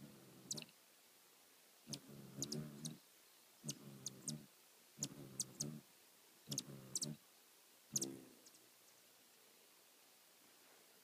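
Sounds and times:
hummingbird wings humming: 0.0s - 0.8s, 1.9s - 7.2s, 7.9s - 8.7s.

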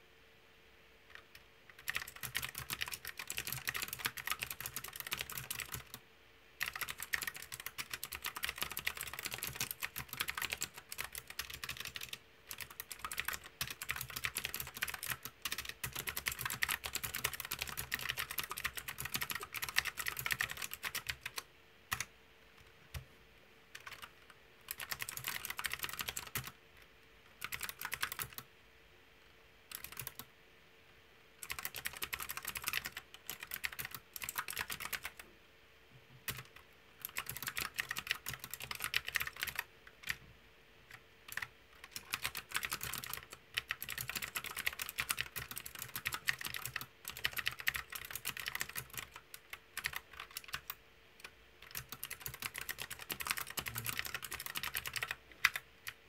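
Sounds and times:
mechanical keyboard typing: 1.1s - 6.0s, 6.6s - 23.0s, 23.7s - 26.6s, 27.3s - 28.5s, 29.7s - 30.3s, 31.4s - 35.2s, 36.2s - 40.2s, 40.9s - 56.0s.

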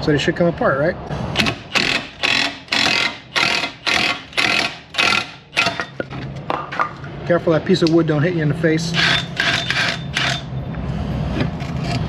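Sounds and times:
wrench rattling bursts: 1.4s - 6.1s, 9.0s - 10.5s.

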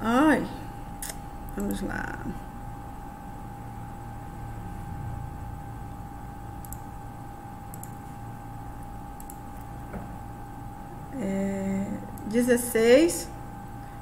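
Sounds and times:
steady electrical hum: 0.0s - 14.0s
computer mouse clicks: 6.6s - 6.9s, 7.7s - 8.0s, 9.2s - 9.7s.

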